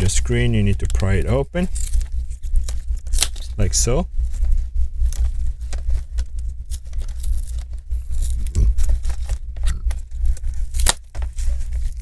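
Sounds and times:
low steady rumble: 0:00.0 - 0:12.0
adhesive tape tearing: 0:01.7 - 0:03.6, 0:10.3 - 0:11.3.

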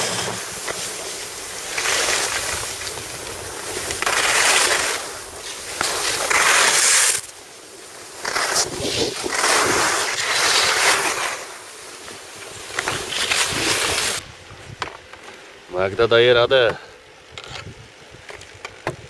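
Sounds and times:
skis scraping on snow: 0:00.0 - 0:19.0
wind on microphone: 0:08.5 - 0:10.0.

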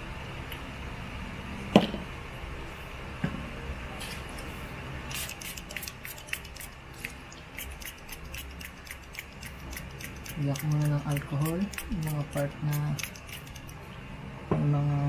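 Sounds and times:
steady low hum: 0:00.0 - 0:15.0
small tools clicking on circuit board: 0:05.2 - 0:13.8.

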